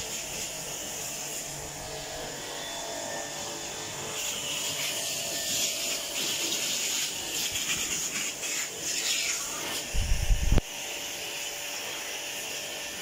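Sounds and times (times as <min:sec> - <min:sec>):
water spray hitting concrete: 0:00.0 - 0:01.6, 0:04.1 - 0:12.1.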